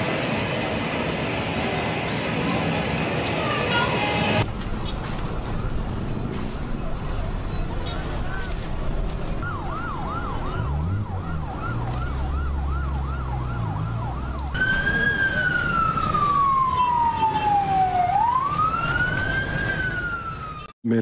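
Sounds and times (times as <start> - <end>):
low vehicle rumble: 1.3 - 20.6
siren wailing: 9.3 - 20.7
siren yelping: 9.4 - 20.7.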